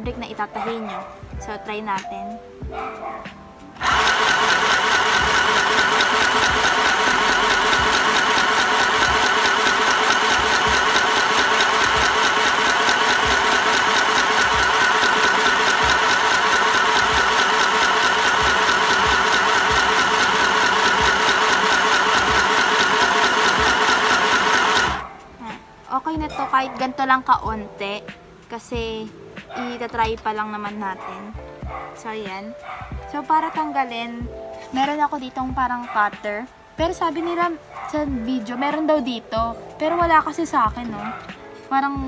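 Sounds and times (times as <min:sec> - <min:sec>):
sewing machine motor whirring: 0:03.8 - 0:25.0.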